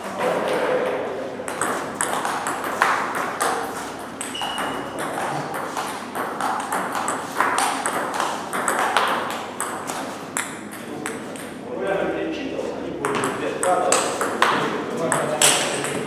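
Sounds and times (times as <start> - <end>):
table tennis ball clicking: 1.5 - 11.6.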